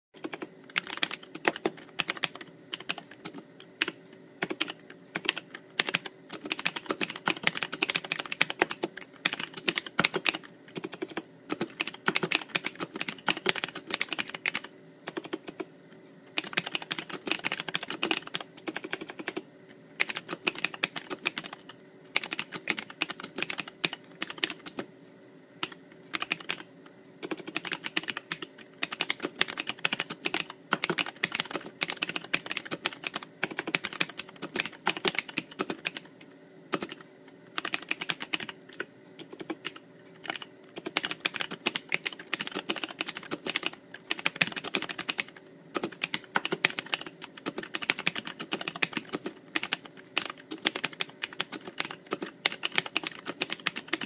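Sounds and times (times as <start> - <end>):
mechanical keyboard typing: 0.2 - 15.7, 16.4 - 19.4, 20.0 - 24.9, 25.6 - 36.1, 36.7 - 54.0.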